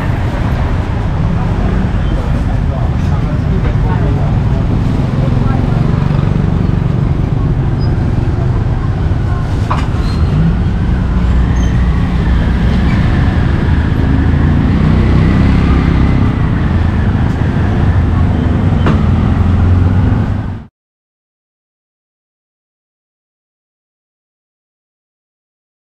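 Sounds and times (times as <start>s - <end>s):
street traffic rumble: 0.0s - 20.7s.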